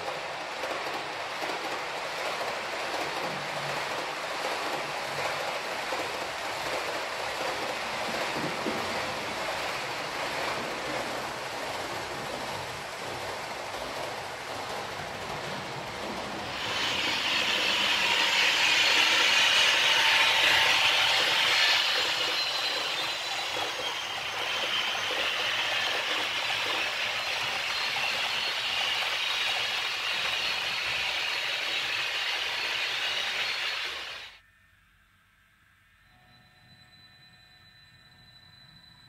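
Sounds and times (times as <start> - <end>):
model train wheels rattling on rails: 0.0 - 34.4
faint high whine: 33.6 - 39.0.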